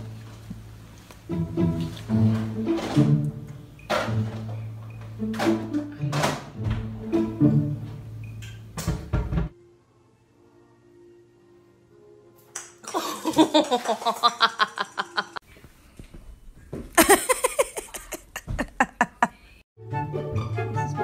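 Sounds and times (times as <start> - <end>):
music: 0.0 - 13.5, 19.8 - 21.0
small child laughing: 12.9 - 15.4, 17.0 - 19.5.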